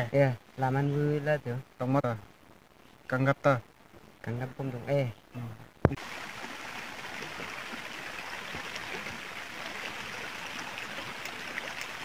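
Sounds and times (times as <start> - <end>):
steady rushing hiss: 0.0 - 12.0
faint light crackles: 2.1 - 4.4.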